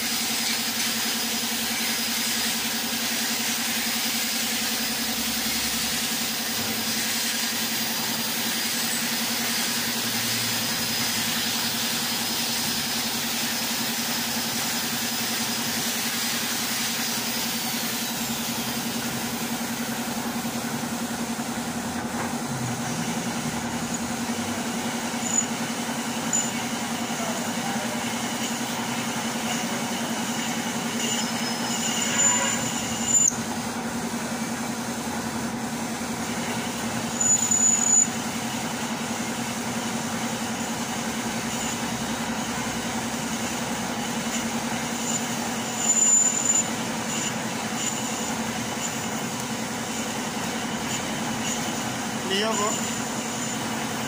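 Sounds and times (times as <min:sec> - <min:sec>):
lathe cutting metal: 0:00.0 - 0:54.0
lathe motor hum: 0:00.0 - 0:54.0
high-pitched squeals: 0:29.0 - 0:33.4.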